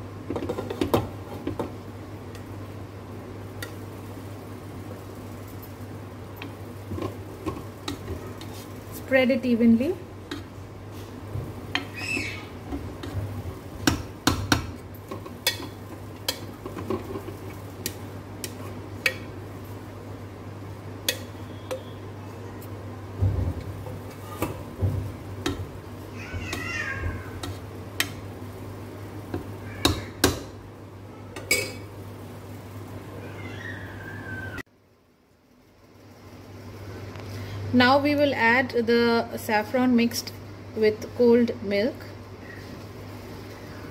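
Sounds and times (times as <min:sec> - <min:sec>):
steady low hum: 0:00.0 - 0:33.1.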